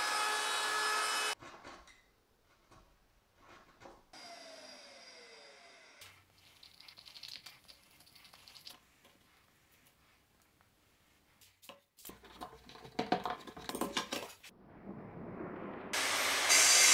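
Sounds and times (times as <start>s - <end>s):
faint falling tone: 14.5s - 16.2s.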